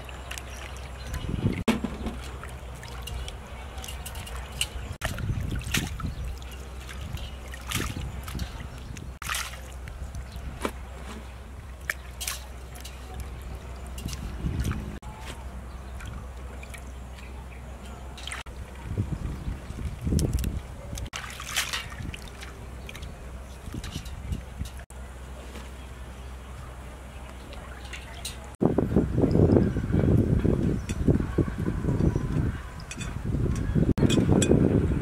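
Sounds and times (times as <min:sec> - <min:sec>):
leaves swishing in water: 0:00.0 - 0:17.4, 0:18.0 - 0:25.9
low steady rumble: 0:00.0 - 0:35.0.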